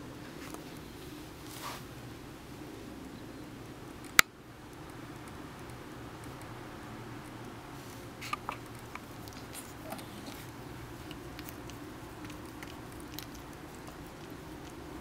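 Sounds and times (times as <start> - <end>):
steady low hum: 0.0 - 15.0
soft fur rustles: 0.1 - 2.1, 7.7 - 8.4
small wet licking clicks: 3.0 - 15.0.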